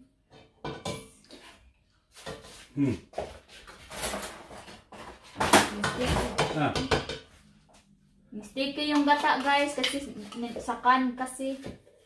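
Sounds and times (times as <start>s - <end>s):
cookware and utensils clattering: 0.2s - 2.7s, 3.3s - 7.4s, 8.6s - 11.1s.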